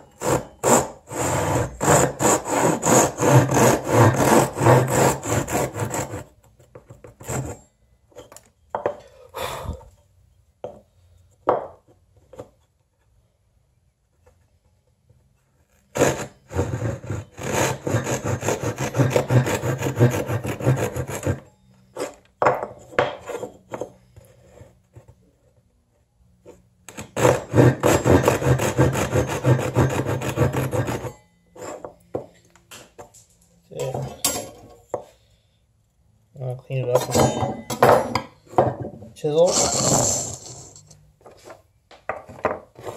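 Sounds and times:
hand saw cutting wood: 0.2 - 6.4, 7.2 - 7.6, 15.9 - 21.5, 26.9 - 31.2, 39.4 - 40.7.

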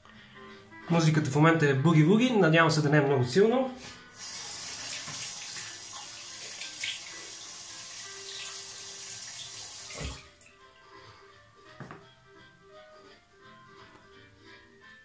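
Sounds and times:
soft boogie-woogie music: 0.0 - 15.0
tap water running: 4.1 - 10.5.

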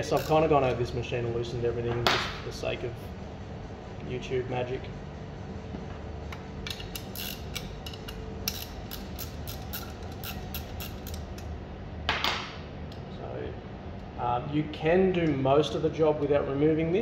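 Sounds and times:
metal clicks and creaks: 0.0 - 0.5, 6.6 - 11.5.

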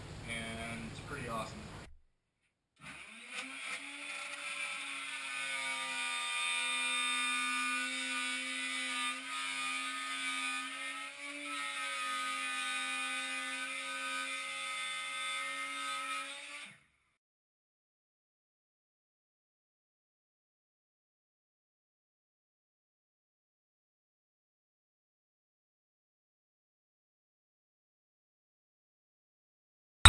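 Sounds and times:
router high whine: 2.8 - 14.4.

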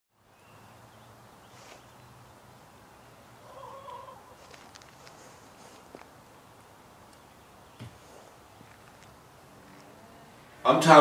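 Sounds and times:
drawn-out animal call: 3.4 - 4.4
chicken flock ambience: 3.4 - 5.8.

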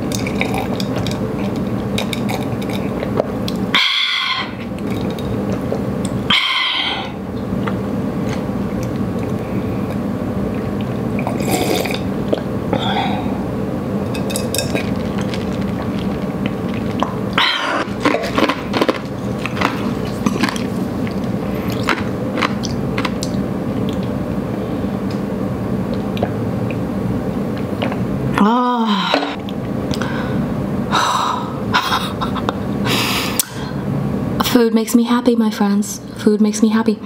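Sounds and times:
room hum: 0.0 - 37.0.

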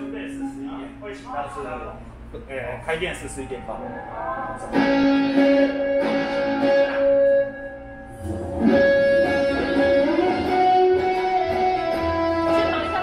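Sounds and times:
live guitar music: 3.9 - 13.0.

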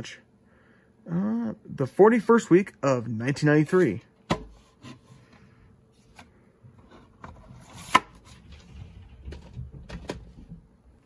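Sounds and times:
plastic cassettes clicking and knocking: 9.2 - 10.4.

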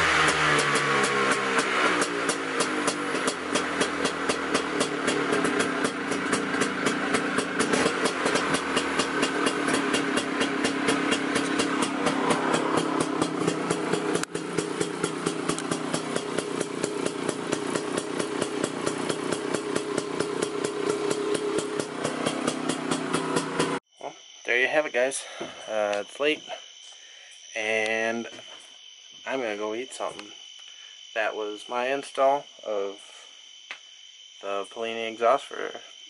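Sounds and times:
scooter engine idling: 0.0 - 23.8.

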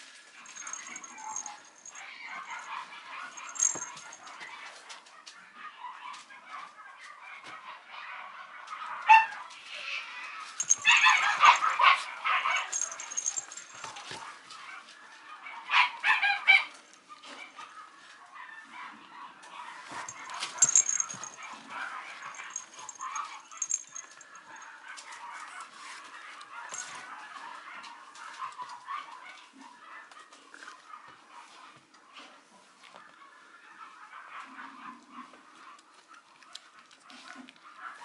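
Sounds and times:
clicks and scuffling: 0.4 - 2.7, 3.3 - 5.0, 10.6 - 14.3, 19.9 - 24.7, 26.7 - 27.0
puppy yapping: 10.6 - 14.1.

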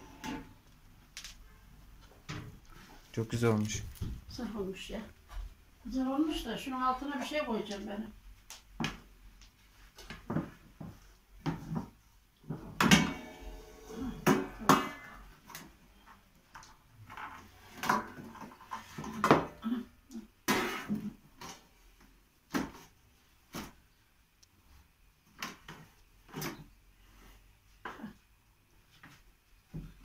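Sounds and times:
metal pans clattering on countertop: 14.2 - 15.3.

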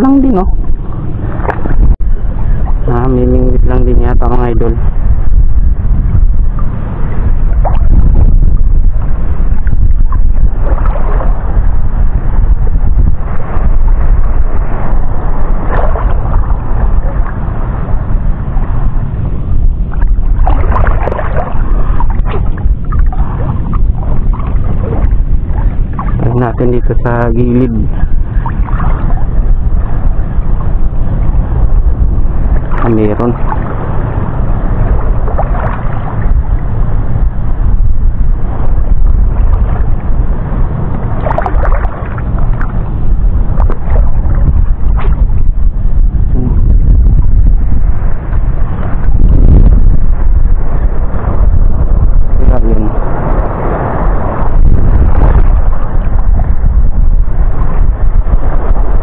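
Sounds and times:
choppy water splashing: 0.0 - 59.0
wind buffeting microphone: 0.0 - 59.0
clicks and splashes: 20.4 - 23.2, 41.2 - 42.7.

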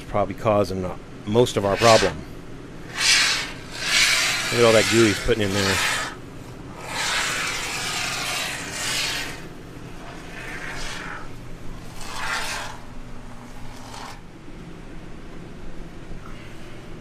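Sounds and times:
aerosol foam can hissing: 1.6 - 2.2, 2.8 - 12.9, 13.6 - 14.2.

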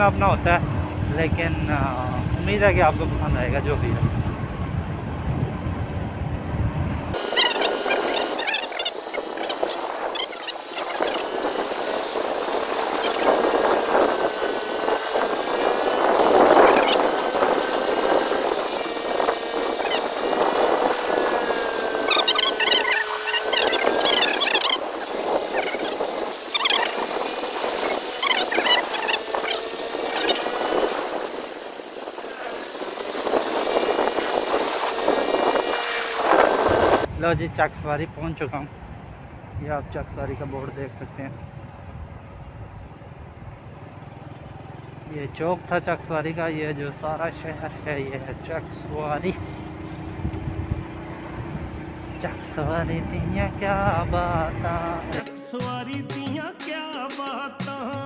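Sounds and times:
road and wind noise: 0.0 - 55.2
motorbike engine running: 3.9 - 37.1
thin steady high tone: 7.2 - 34.9
short high squeaks: 7.2 - 37.1.

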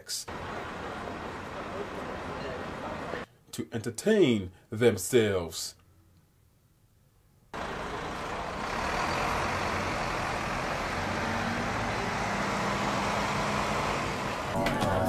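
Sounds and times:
street traffic with buses: 0.0 - 3.4, 7.5 - 15.0.

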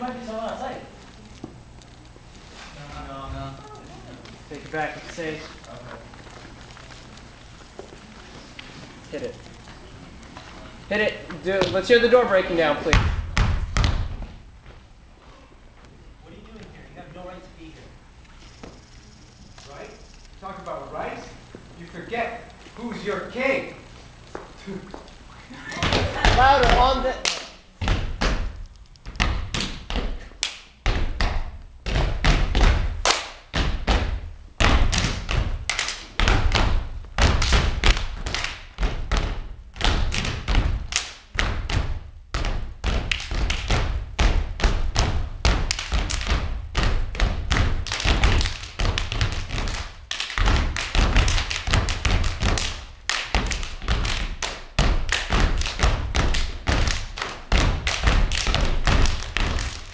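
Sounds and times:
feet stomping on wooden stage: 27.8 - 30.3, 30.9 - 59.9.

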